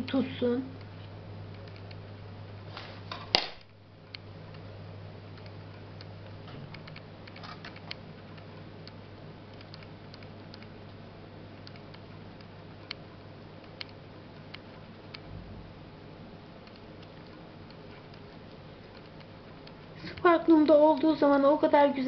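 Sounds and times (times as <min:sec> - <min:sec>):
steady low hum: 0:00.0 - 0:22.0
sharp click: 0:05.4 - 0:10.7, 0:11.6 - 0:13.0.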